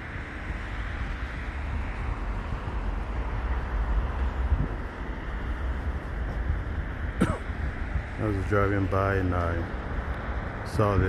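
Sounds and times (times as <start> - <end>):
road traffic noise: 0.0 - 11.0
wind buffeting microphone: 0.0 - 11.0.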